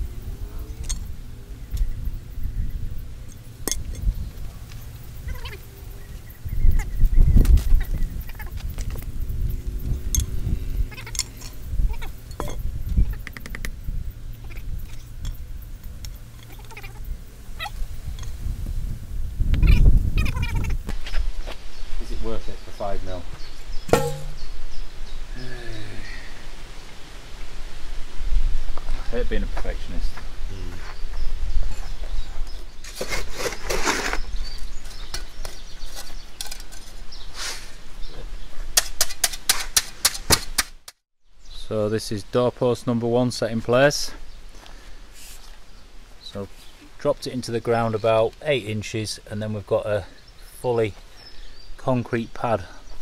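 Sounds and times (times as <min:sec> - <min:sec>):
rapid chattering call: 0:16.4 - 0:17.8
spirit level knocking on stone: 0:23.9 - 0:24.4
shovel scraping soil and stones: 0:32.8 - 0:37.8.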